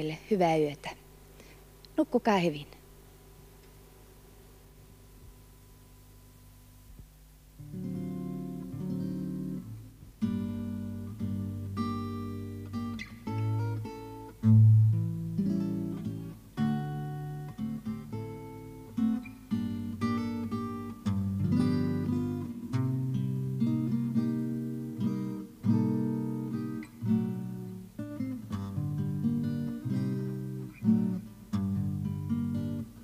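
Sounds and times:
guitar chords: 0:07.6 - 0:33.0.

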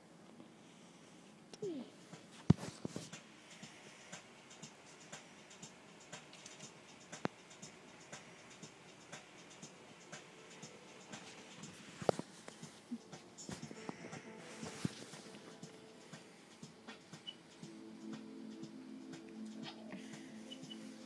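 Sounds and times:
scratching and rustling on duvet: 0:02.2 - 0:03.2, 0:11.1 - 0:15.8.

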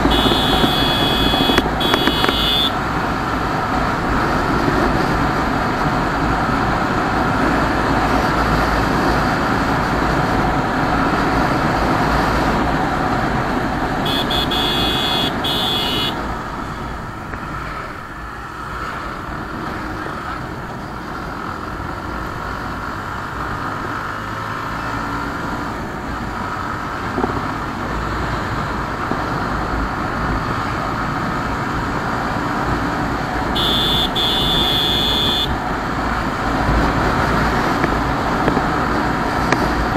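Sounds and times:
vehicle horn: 0:00.0 - 0:02.8, 0:14.0 - 0:16.2, 0:33.6 - 0:35.6
motorcycle engine: 0:00.0 - 0:27.5, 0:30.3 - 0:39.9.

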